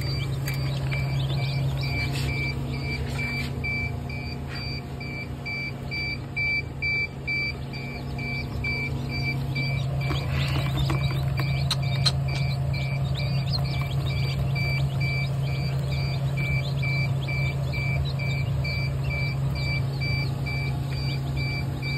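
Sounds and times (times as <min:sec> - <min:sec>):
chicks peeping: 0:00.0 - 0:21.9
incubator machinery hum: 0:00.0 - 0:21.9
repeating electronic beep: 0:00.0 - 0:21.9
clicks and rustles: 0:10.0 - 0:12.5.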